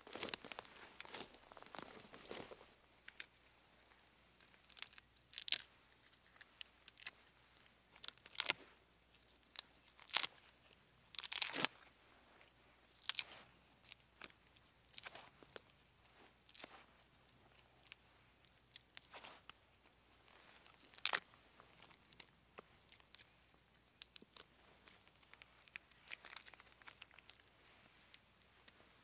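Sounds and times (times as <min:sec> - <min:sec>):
bark tearing: 0:09.9 - 0:10.3, 0:11.2 - 0:11.7, 0:20.7 - 0:21.2.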